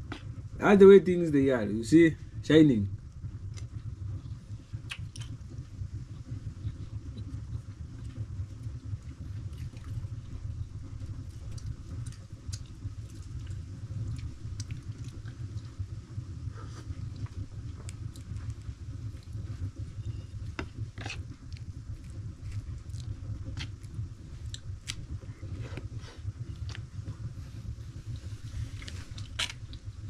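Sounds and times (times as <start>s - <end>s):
low rumble: 0.0s - 30.0s
livestock crunching maize: 6.1s - 26.9s, 28.1s - 30.0s.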